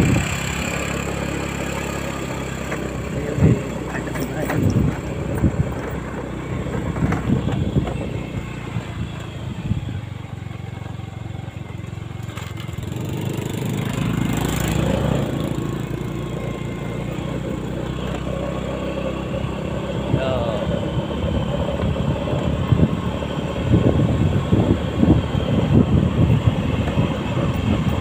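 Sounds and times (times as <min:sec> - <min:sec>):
wind rumbling on microphone: 0:00.0 - 0:00.6, 0:03.0 - 0:10.4, 0:19.9 - 0:28.0
motorcycle engine running: 0:00.0 - 0:28.0.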